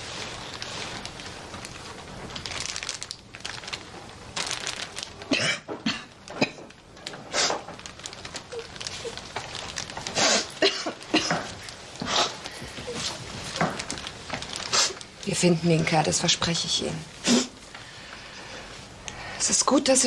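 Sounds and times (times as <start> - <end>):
plastic bag crinkling: 0.0 - 19.0
woman sobbing: 10.2 - 11.5.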